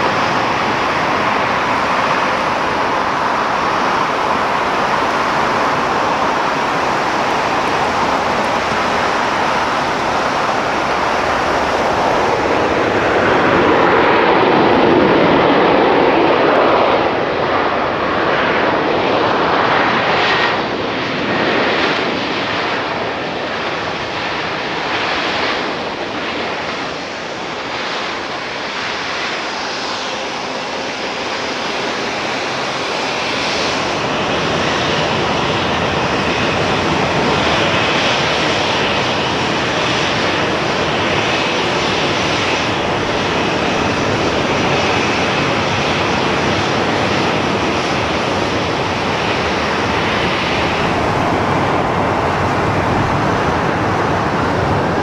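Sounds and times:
jet engine noise: 0.0 - 55.0.

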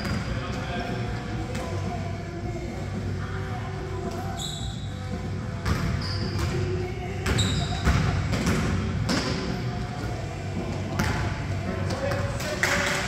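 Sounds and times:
sneakers squeaking: 0.0 - 0.9, 4.0 - 12.8
basketball bouncing on gym floor: 5.6 - 6.6, 7.2 - 9.4, 11.0 - 11.4.

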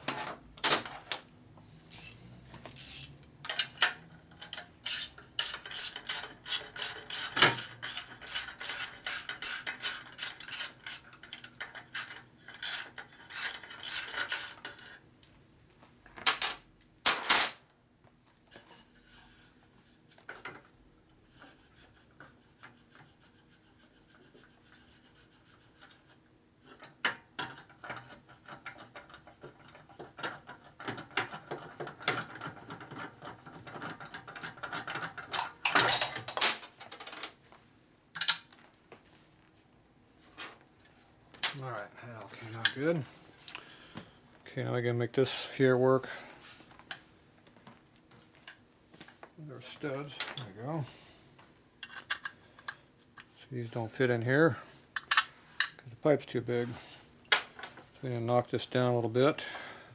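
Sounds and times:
ratchet wrench clicking: 1.9 - 3.2, 4.9 - 11.2, 12.0 - 15.0.

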